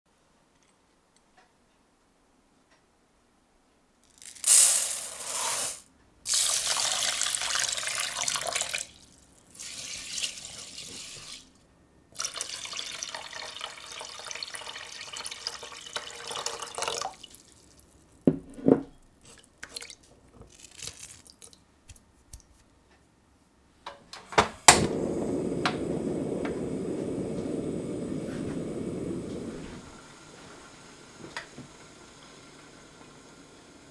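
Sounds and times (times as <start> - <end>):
rice pouring into a saucepan: 4.2 - 11.5, 12.2 - 17.8
pot knocking: 18.3 - 19.0
gas burner hissing: 24.2 - 33.9
gas stove igniter click: 24.4 - 29.5.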